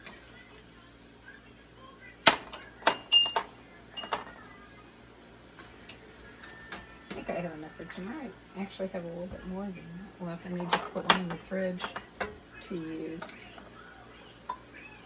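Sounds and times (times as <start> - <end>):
glass jar clinking on metal: 3.0 - 4.2.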